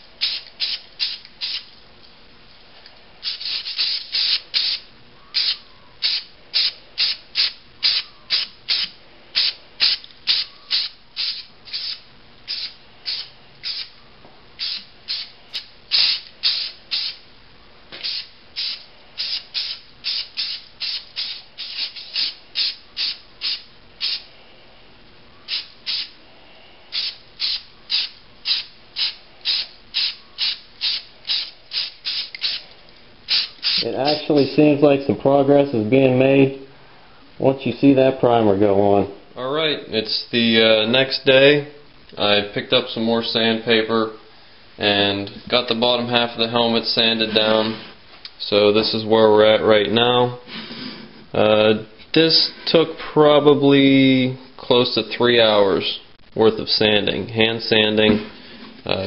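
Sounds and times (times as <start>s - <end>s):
spray can hissing: 0.2s - 1.7s, 3.2s - 4.8s, 5.4s - 13.9s, 14.6s - 17.2s, 18.0s - 24.3s, 25.5s - 26.2s, 26.9s - 32.6s, 33.3s - 34.3s.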